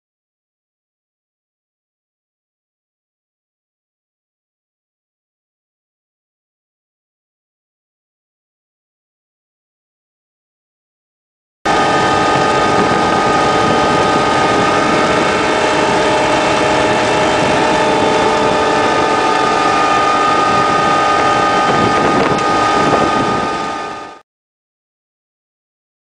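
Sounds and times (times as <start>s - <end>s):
harvester engine droning: 11.7s - 24.2s
machinery whining tones: 11.7s - 24.2s.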